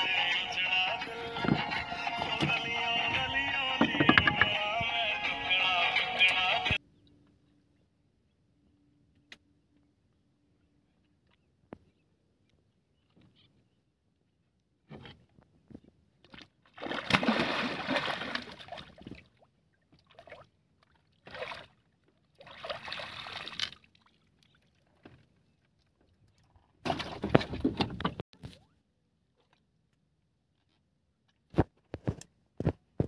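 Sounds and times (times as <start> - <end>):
water splashing beside boat: 16.2 - 28.2.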